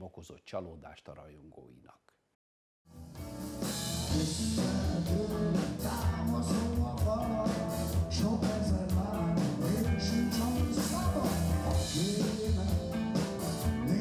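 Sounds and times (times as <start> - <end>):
live rock band playing: 3.0 - 14.0
man singing: 4.1 - 14.0.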